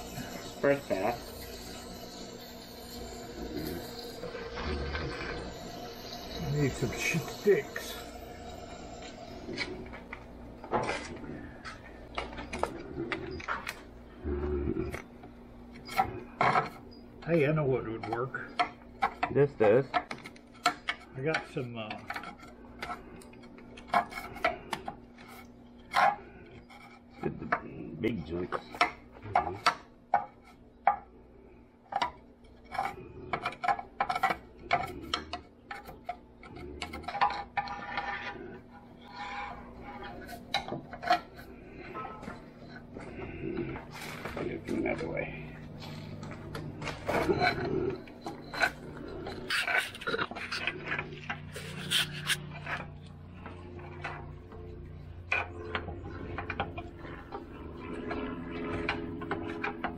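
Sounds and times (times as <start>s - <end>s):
faint low hum: 0.0s - 59.9s
hand scraper scraping grease: 15.8s - 29.8s, 32.6s - 45.0s, 45.7s - 58.0s.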